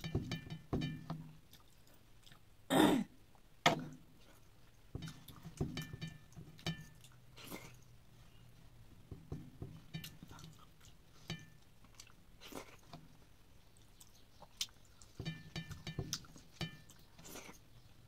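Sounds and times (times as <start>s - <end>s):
person clearing throat: 2.7s - 3.8s
wet lip smacks and chewing: 13.7s - 15.1s.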